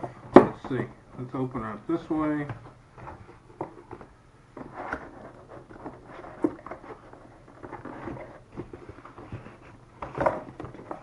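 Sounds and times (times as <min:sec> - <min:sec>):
packaging rustling and scraping: 0:04.6 - 0:11.0.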